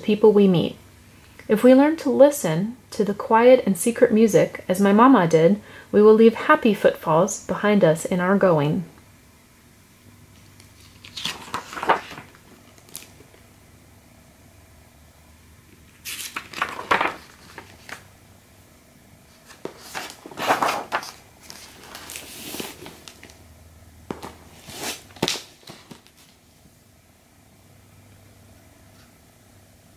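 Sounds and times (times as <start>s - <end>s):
book pages turning: 10.4s - 13.4s, 15.9s - 18.1s, 19.3s - 23.4s, 24.1s - 26.4s.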